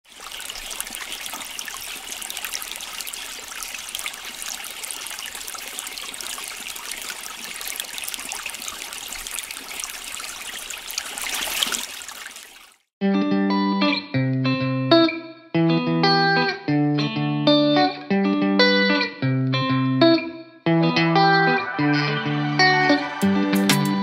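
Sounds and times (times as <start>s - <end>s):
tap water running and splashing: 0.0s - 12.9s.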